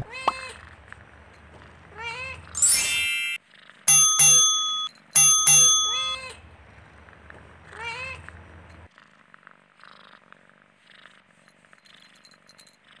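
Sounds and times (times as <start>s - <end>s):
cat meowing: 0.0s - 0.8s, 1.9s - 2.6s, 7.7s - 8.3s
cat purring: 0.0s - 2.6s, 6.4s - 12.2s.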